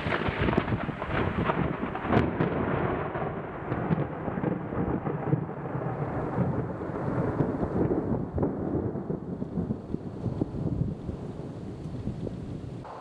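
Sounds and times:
thunder rumbling: 0.0 - 13.0
crackling noise: 9.4 - 13.0.

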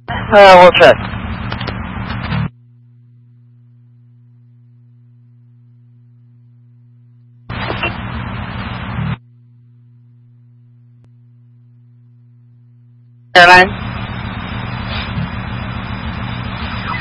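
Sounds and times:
low electrical hum: 0.0 - 17.0
burst of radio static: 0.1 - 2.5, 7.5 - 9.2, 13.4 - 17.0.

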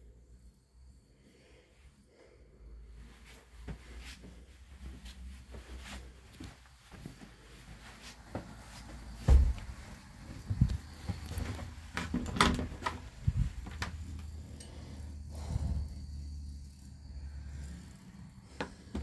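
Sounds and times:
heavy door thump: 9.2 - 9.8.

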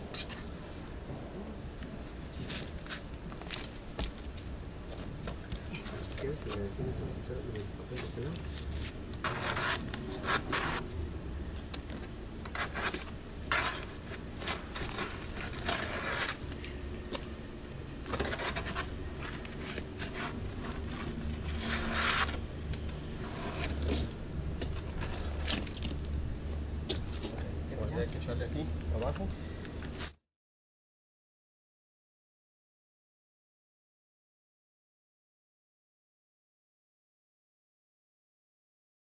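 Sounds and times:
trowel scraping cement: 9.2 - 10.8, 12.5 - 16.4, 18.1 - 22.4, 23.2 - 25.6.

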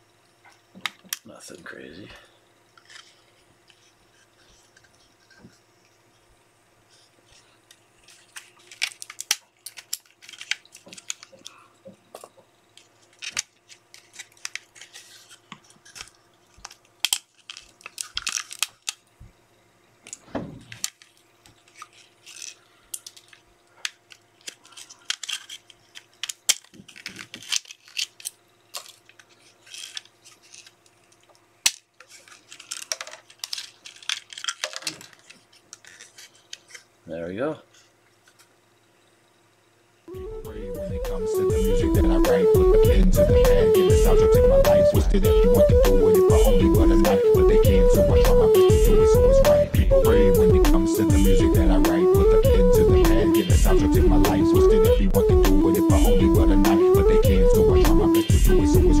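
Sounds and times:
plastic clicking and cracking: 7.7 - 19.0, 20.0 - 36.9.

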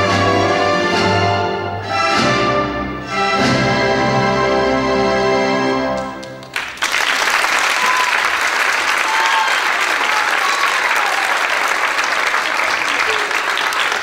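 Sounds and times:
audience applauding: 6.0 - 14.0
crowd calling out: 7.6 - 11.8.

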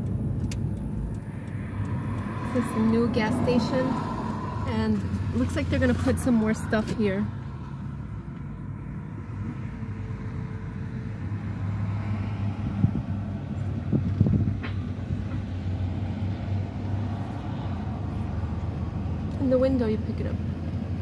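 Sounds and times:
car engine and tyres hum: 0.0 - 21.0.

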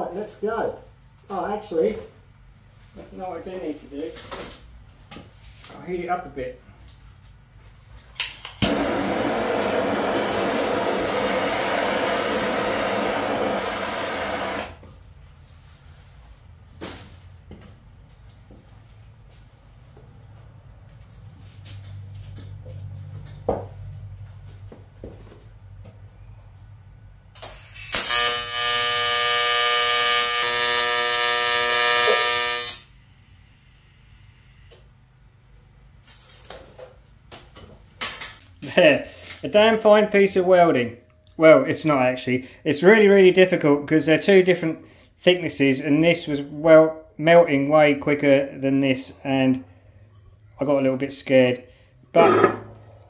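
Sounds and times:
gas torch hissing: 8.6 - 14.8
welding arc buzzing: 8.6 - 14.8, 27.4 - 33.0.

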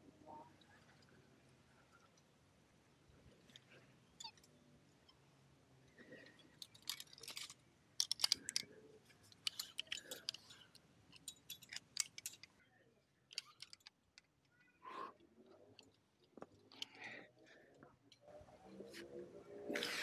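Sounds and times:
climbing gear clinking and rattling: 6.0 - 12.6, 13.3 - 14.8, 15.5 - 18.2.

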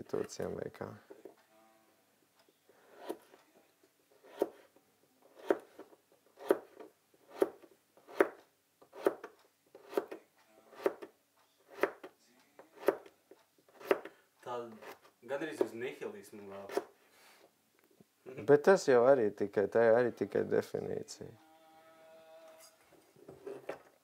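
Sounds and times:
knife cutting on cutting board: 4.2 - 4.6, 5.3 - 5.8, 6.4 - 11.1.

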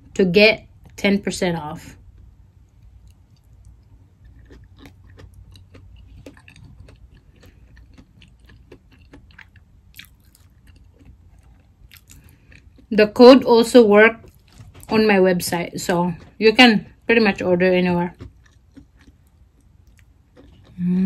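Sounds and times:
person chewing: 2.0 - 12.9, 14.2 - 15.0, 18.0 - 21.0.

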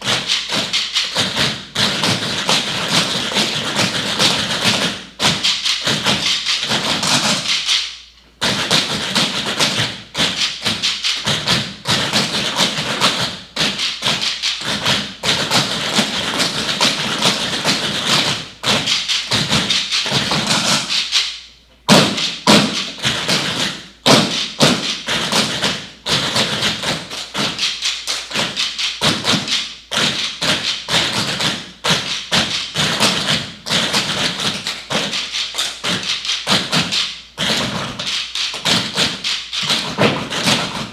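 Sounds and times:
tap shoes on wooden floor: 21.9 - 40.9.

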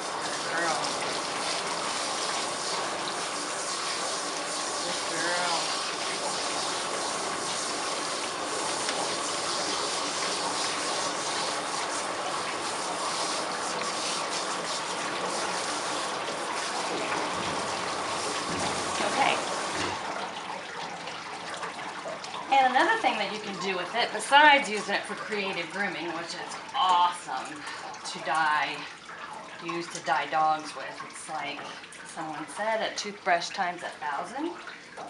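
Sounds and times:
water spraying from hose: 0.0 - 20.6.

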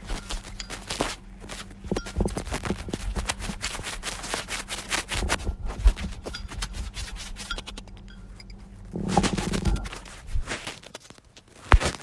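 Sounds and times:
faint low hum: 0.0 - 12.0
paintbrush scratching on paper: 1.9 - 7.8
heavy thump: 8.9 - 10.0.

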